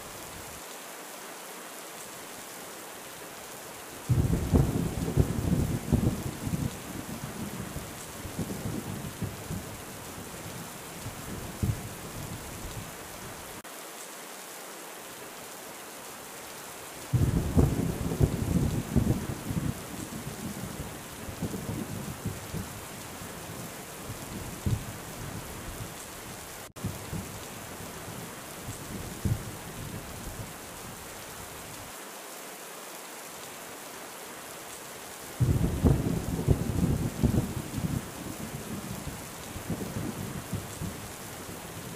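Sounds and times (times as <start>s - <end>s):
heavy rain hissing: 0.0s - 41.9s
rolling thunder: 4.1s - 9.8s, 17.1s - 22.8s, 35.4s - 41.0s.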